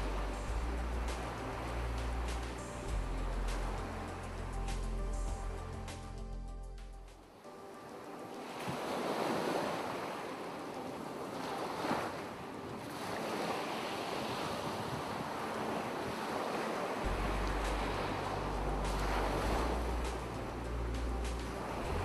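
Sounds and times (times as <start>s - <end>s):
ocean surf washing ashore: 0.0s - 6.0s, 7.2s - 22.0s
low steady hum: 0.0s - 6.7s, 17.1s - 22.0s.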